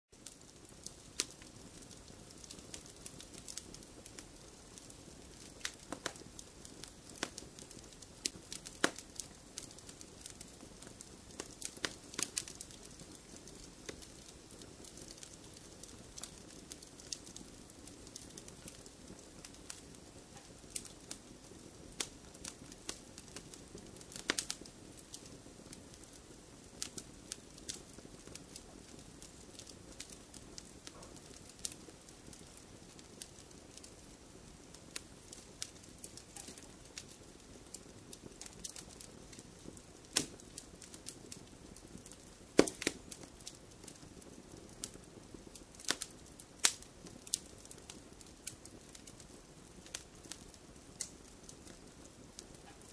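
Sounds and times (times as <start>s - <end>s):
campfire wood crackling and popping: 0.2s - 52.9s.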